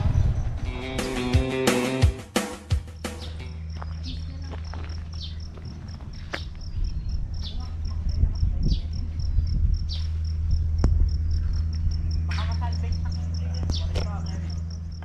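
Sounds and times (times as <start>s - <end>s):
low rumble: 0.0s - 1.0s, 3.2s - 15.0s
insect chirping: 2.9s - 15.0s
low steady hum: 3.4s - 15.0s.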